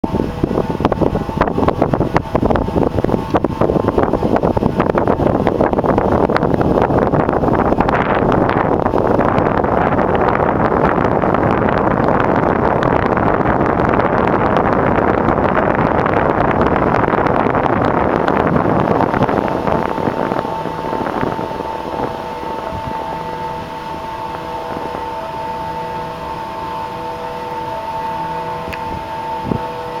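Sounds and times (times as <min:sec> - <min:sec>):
steady hum of held tones: 0:00.0 - 0:30.0
wind on microphone: 0:00.0 - 0:30.0.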